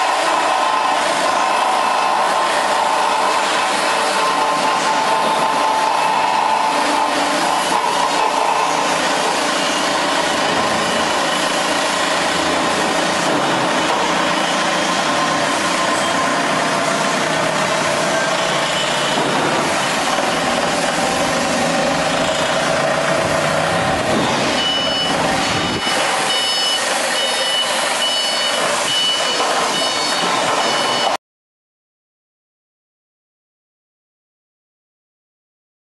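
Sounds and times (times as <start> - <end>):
forklift engine running: 0.0 - 31.2
reversing alarm beeping: 9.5 - 11.8, 13.8 - 16.6, 18.0 - 19.3, 24.2 - 31.2.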